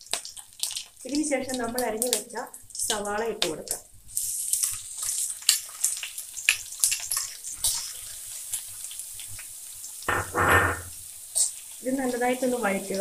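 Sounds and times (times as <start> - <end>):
onion sizzling in hot oil: 0.0 - 13.0
spatula scraping a pan: 10.1 - 11.6.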